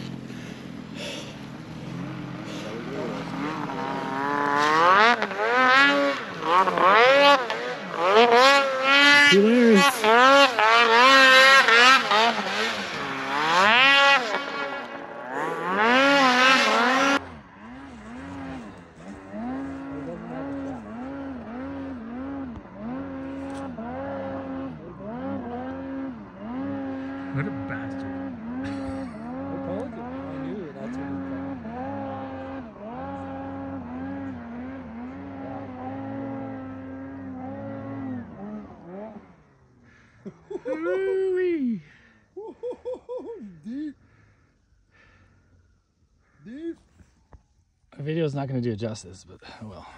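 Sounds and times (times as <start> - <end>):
snowmobile engine revving: 0.0 - 44.3.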